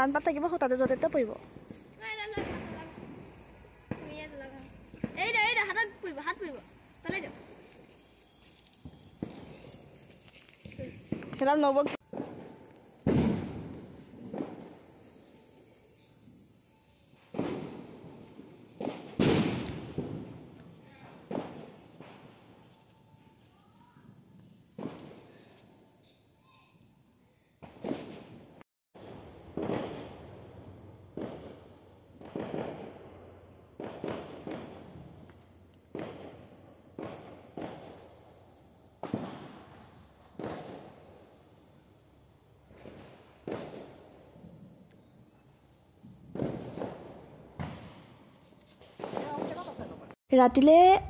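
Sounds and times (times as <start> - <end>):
firecrackers banging: 0.0 - 14.9, 17.3 - 22.5, 29.0 - 38.3, 39.0 - 41.1, 42.7 - 44.0, 46.3 - 48.0, 48.8 - 51.0.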